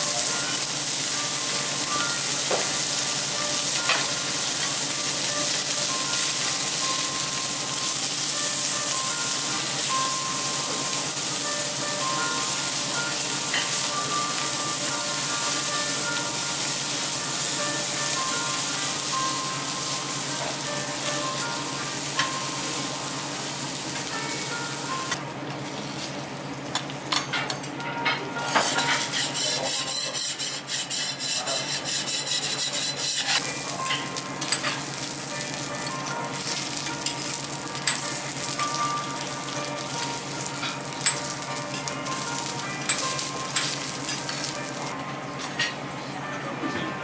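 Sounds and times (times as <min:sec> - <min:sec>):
food sizzling on griddle: 0:00.0 - 0:26.7, 0:28.6 - 0:45.6
metal spatulas scraping: 0:28.5 - 0:33.5.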